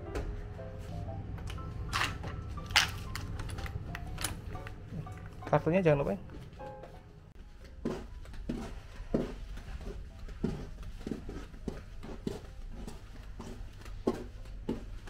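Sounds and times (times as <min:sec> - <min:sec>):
footsteps on carpet: 0:06.3 - 0:15.0.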